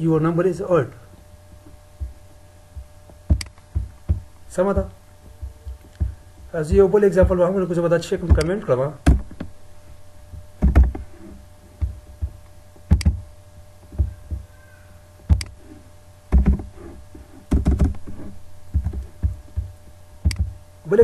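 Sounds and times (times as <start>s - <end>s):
faint steady hum: 0.0s - 21.0s
keyboard keystrokes: 12.9s - 13.2s.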